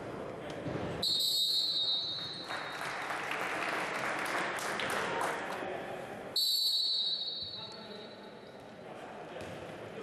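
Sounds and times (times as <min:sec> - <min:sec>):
whistle blast: 0:01.0 - 0:02.4, 0:06.4 - 0:08.1
spectators applauding: 0:02.0 - 0:05.5.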